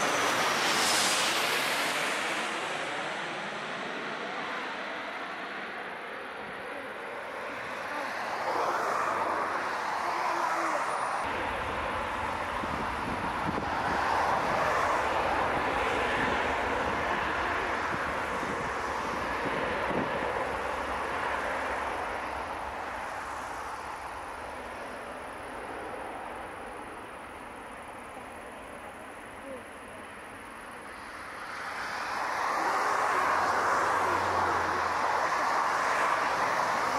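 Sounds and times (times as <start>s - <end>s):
jet engines rushing: 0.0s - 29.0s.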